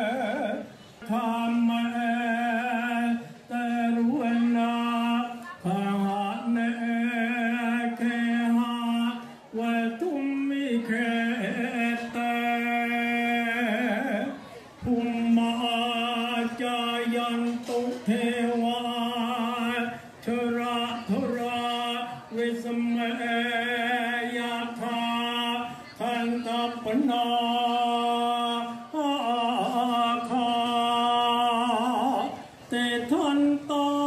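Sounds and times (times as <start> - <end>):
man chanting: 0.0 - 34.0.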